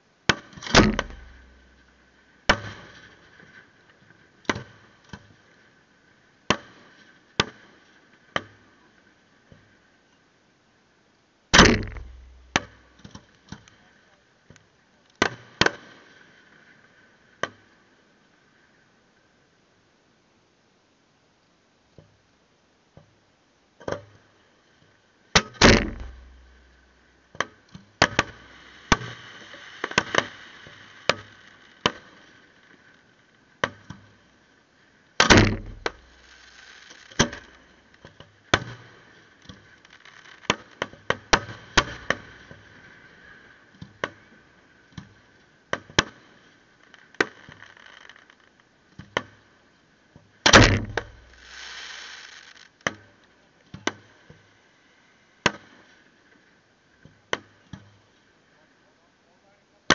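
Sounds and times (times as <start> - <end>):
fireworks bursting with sharp bangs: 0.3 - 1.9, 2.5 - 3.6, 11.6 - 13.1, 25.4 - 27.0, 28.0 - 32.9, 35.2 - 42.8, 50.5 - 53.3
firework crackle: 0.4 - 3.9, 11.6 - 13.8, 28.0 - 45.4, 46.1 - 48.7, 50.6 - 53.4
heavy firework booms: 0.7 - 1.6, 11.6 - 12.6, 35.2 - 36.3.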